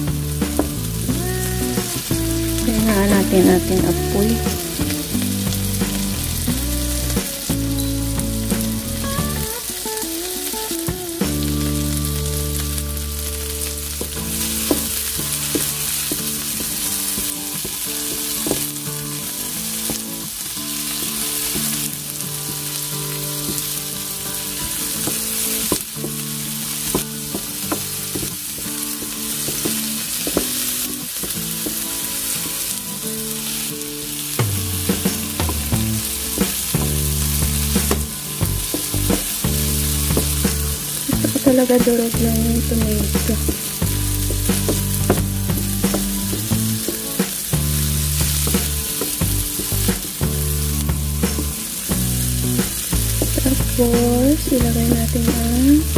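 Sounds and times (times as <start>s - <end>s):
tomato slices sizzling in oil: 0.0s - 55.9s
wooden spatula taps and scrapes: 34.4s - 47.2s.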